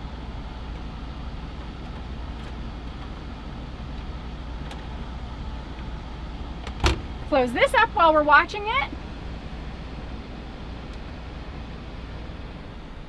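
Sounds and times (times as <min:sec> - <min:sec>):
air conditioner humming: 0:00.0 - 0:13.0
cabinet door shutting: 0:06.7 - 0:07.2.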